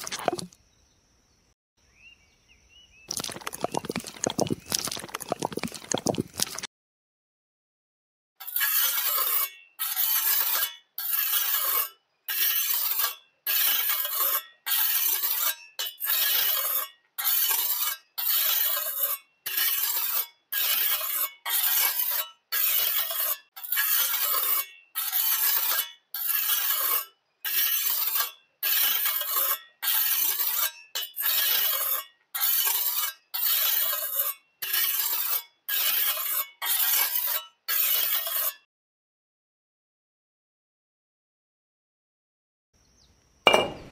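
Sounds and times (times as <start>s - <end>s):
trowel scraping wet cement: 0.0s - 0.5s, 3.1s - 6.7s, 8.4s - 38.7s.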